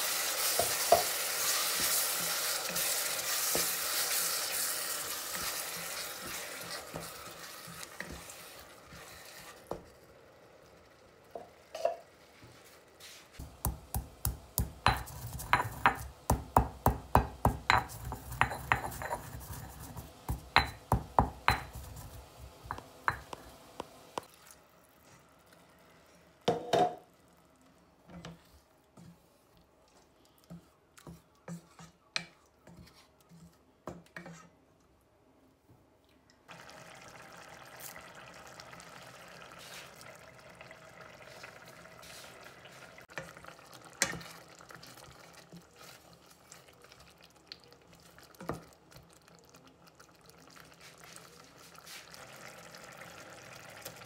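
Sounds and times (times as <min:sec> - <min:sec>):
sauce simmering with a hiss: 0:00.0 - 0:26.4, 0:36.5 - 0:54.0
stone mortar and pestle knocking: 0:13.5 - 0:19.2.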